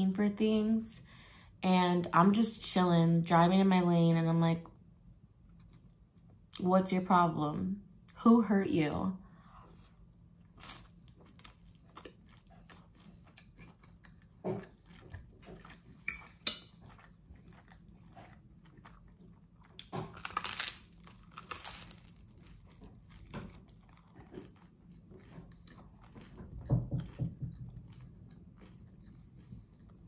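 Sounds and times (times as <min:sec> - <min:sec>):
chewing food: 0:09.6 - 0:30.0
crunching toasted bread: 0:09.6 - 0:30.0.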